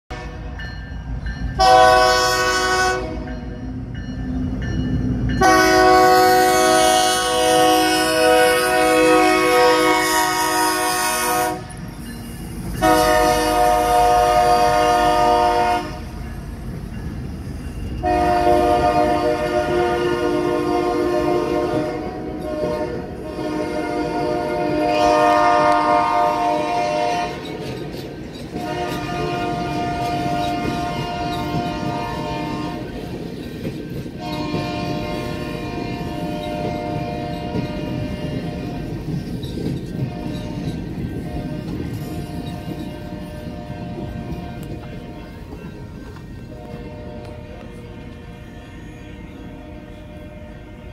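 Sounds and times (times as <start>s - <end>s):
locomotive air horn blasts: 0.1s - 0.5s, 1.6s - 3.4s, 5.4s - 11.8s, 12.8s - 16.2s, 18.0s - 27.6s, 28.5s - 32.9s, 34.2s - 39.0s, 40.0s - 45.4s, 46.5s - 50.9s
train cars clacking on rails: 0.1s - 50.9s.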